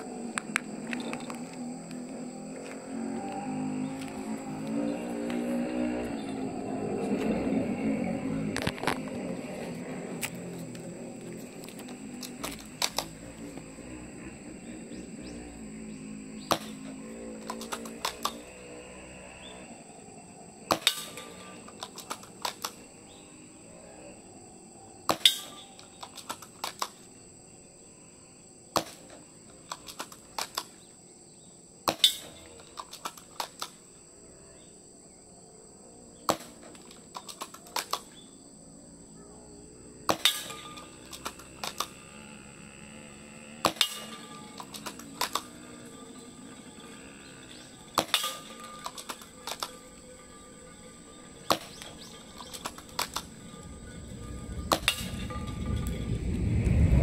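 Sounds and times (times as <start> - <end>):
small clicks: 10.2 - 13.6, 16.5 - 18.6, 20.7 - 22.8, 25.1 - 27.1, 28.8 - 30.8, 31.9 - 33.8, 36.3 - 38.2, 40.1 - 42.0, 43.6 - 45.9, 47.4 - 49.8, 51.5 - 53.4
airsoft rifle shots: 16.4 - 18.5, 20.7 - 22.8, 25.1 - 27.0, 31.9 - 33.8, 36.3 - 38.1, 40.1 - 42.0, 43.6 - 45.7, 47.9 - 49.8.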